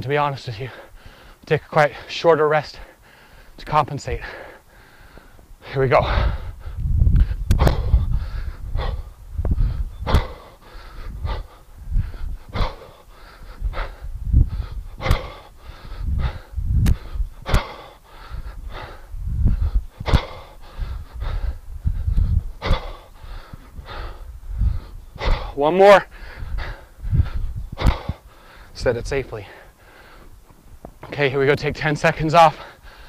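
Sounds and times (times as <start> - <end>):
man breathing hard: 0.6 - 2.1, 2.7 - 30.4, 32.5 - 33.0
sharp forceful exhales: 14.7 - 25.6, 26.2 - 28.7.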